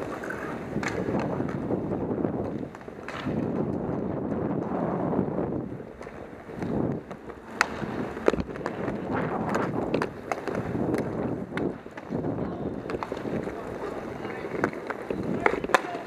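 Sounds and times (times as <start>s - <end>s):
hockey stick clacks: 0.0s - 1.7s, 2.4s - 3.8s, 5.9s - 16.0s
skate wheels rolling and scraping: 0.0s - 16.0s.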